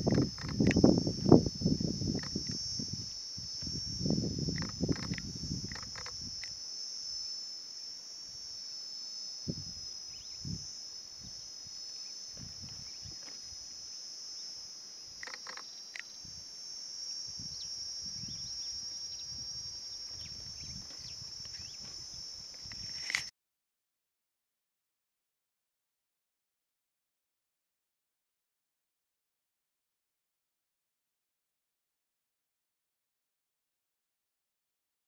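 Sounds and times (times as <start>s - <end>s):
insects trilling: 0.0s - 23.3s.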